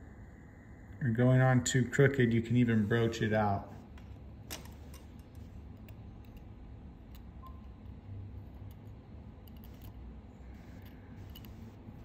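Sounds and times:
low steady hum: 0.0 - 12.0
metal tweezers clicking on steel: 4.9 - 11.7.

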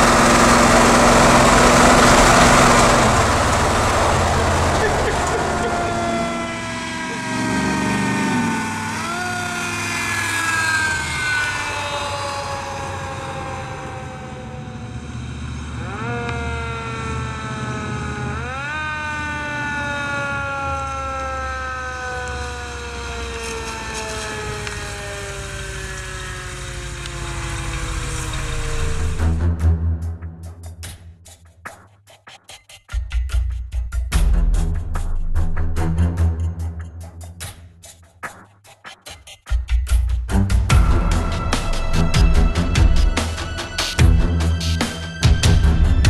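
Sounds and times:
truck engine running: 0.0 - 31.0, 40.3 - 46.0.

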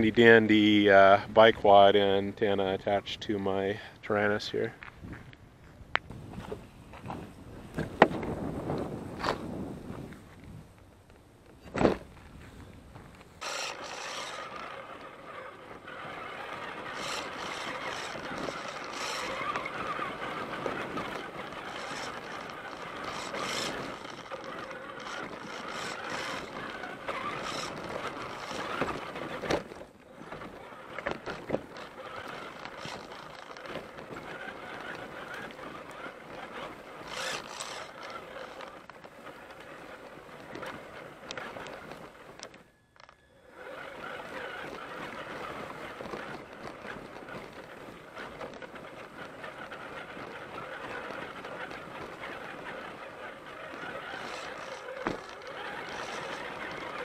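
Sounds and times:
grass brushing: 13.2 - 42.4, 43.6 - 57.0
electric motor whining: 13.4 - 57.0.

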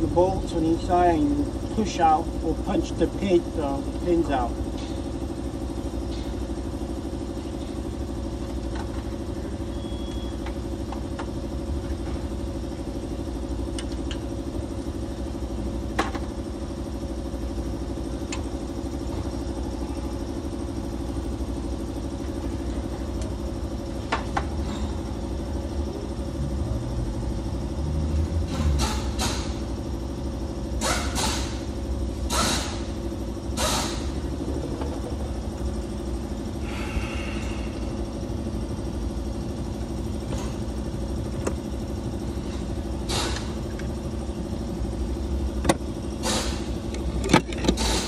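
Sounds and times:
engine idling: 0.0 - 48.0.

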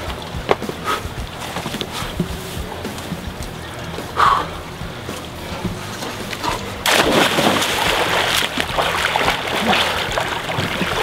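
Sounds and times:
water splashing from swimming: 0.0 - 11.0
splash into water: 6.8 - 11.0.

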